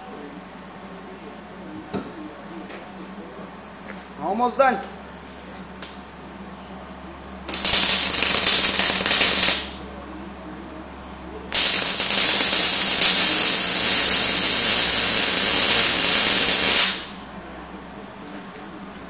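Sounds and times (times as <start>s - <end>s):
welder arc crackling: 7.5s - 9.8s, 11.5s - 17.3s.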